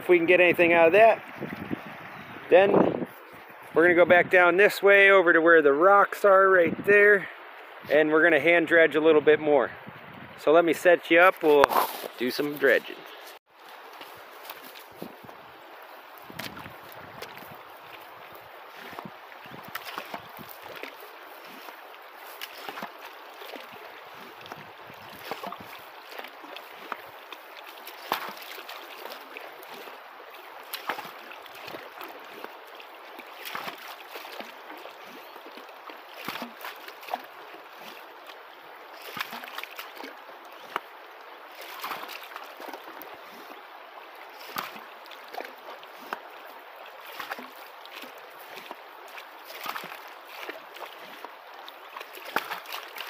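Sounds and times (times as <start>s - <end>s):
creek flowing over gravel: 0.0s - 53.0s
water splashes and gurgles: 0.0s - 53.0s.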